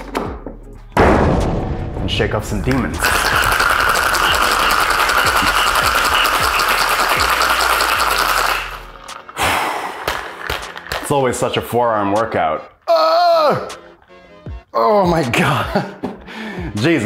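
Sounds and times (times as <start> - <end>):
ice rattling in cocktail shaker: 3.0 - 9.4, 10.0 - 11.2.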